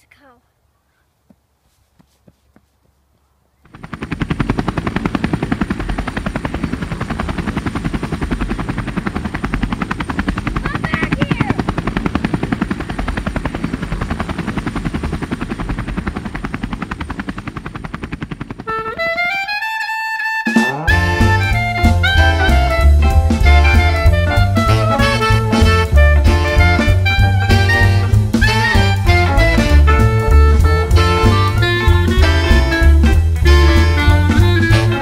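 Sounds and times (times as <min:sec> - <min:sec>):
fast mechanical chopping: 0:03.6 - 0:19.3
music with rising notes: 0:18.6 - 0:35.0.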